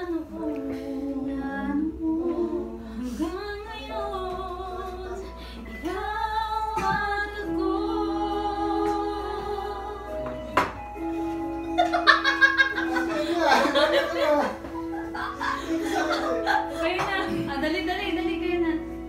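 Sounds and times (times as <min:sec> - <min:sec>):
woman singing: 0:00.0 - 0:10.6
karaoke backing music: 0:00.0 - 0:19.0.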